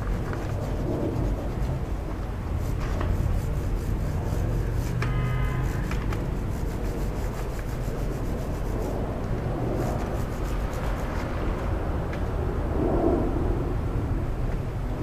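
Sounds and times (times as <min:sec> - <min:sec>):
brush scrubbing a chain: 0:00.0 - 0:11.3
low steady rumble: 0:00.0 - 0:15.0.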